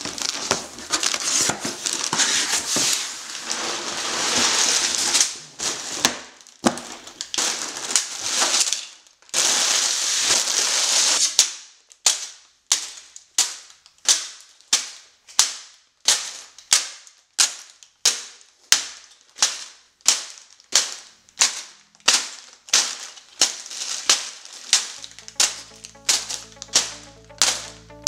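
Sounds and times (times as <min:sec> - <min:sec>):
plastic bags landing on table: 0:00.1 - 0:09.6
music: 0:25.0 - 0:28.0.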